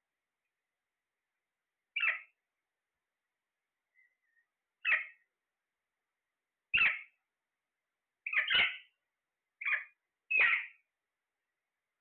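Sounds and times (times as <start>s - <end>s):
parakeet squawks: 1.9s - 2.4s, 4.8s - 5.2s, 6.7s - 7.2s, 8.2s - 9.0s, 9.6s - 10.9s.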